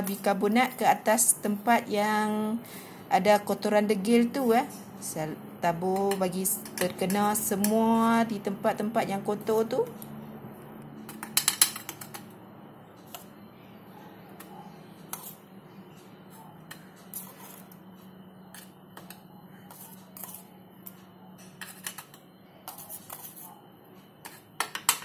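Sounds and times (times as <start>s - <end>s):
metal spoon tapping on metal: 5.9s - 7.9s, 11.1s - 12.3s, 24.6s - 25.0s.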